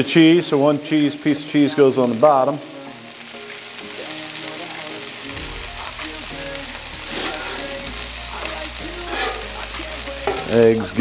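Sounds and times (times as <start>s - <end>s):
steak and egg sizzling on griddle: 0.0s - 11.0s
metal spatula scraping griddle: 5.6s - 11.0s.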